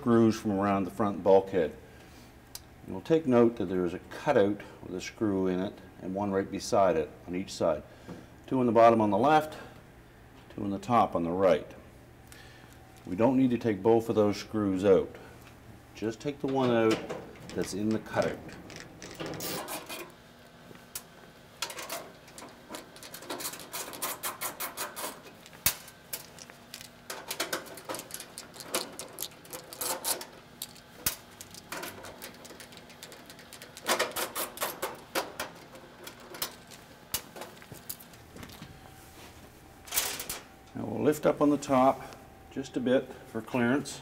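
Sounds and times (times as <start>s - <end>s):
screws tapping sheet metal: 19.0s - 20.1s.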